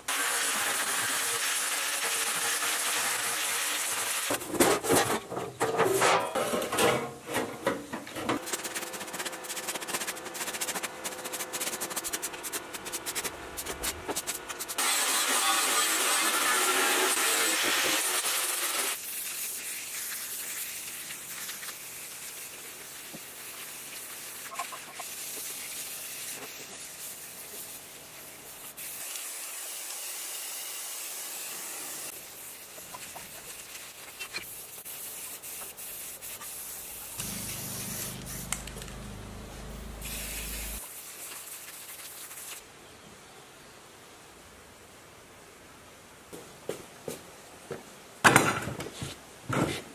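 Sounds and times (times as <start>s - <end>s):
angle grinder on sheet metal: 14.8s - 19.0s, 37.2s - 40.8s
spray-paint cans hissing: 17.1s - 42.6s.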